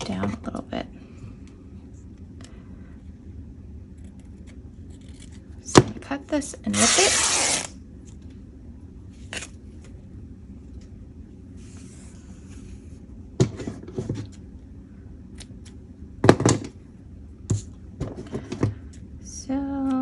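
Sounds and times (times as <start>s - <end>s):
fabric tearing: 6.7s - 7.8s.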